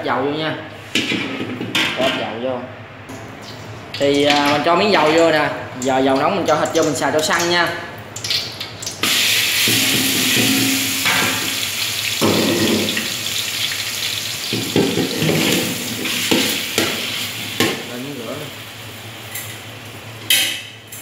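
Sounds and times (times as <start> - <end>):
meat sizzling in hot oil: 8.2 - 20.1.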